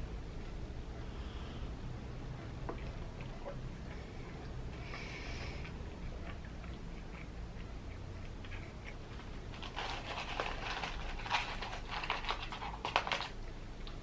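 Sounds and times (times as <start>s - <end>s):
paper carton crinkling: 9.5s - 13.4s.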